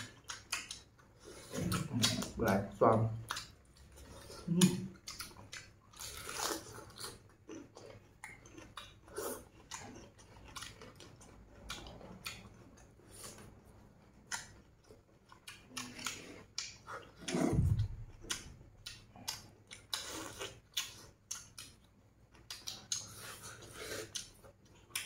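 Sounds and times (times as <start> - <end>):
people chewing: 0.0 - 25.0.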